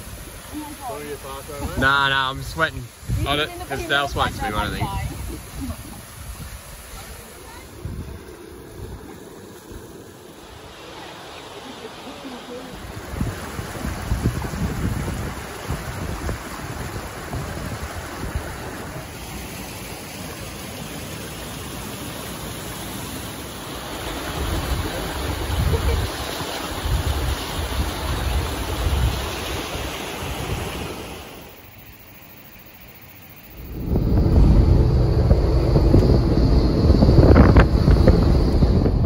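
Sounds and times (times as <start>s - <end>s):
wind buffeting microphone: 0.0s - 11.0s, 12.8s - 19.1s, 24.2s - 29.5s, 33.5s - 39.0s
water rushing over rocks: 0.0s - 31.7s.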